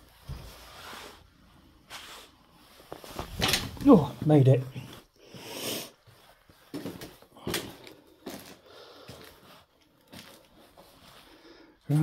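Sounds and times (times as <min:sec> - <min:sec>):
footsteps on debris: 0:06.7 - 0:10.8
heavy breath: 0:07.3 - 0:09.5.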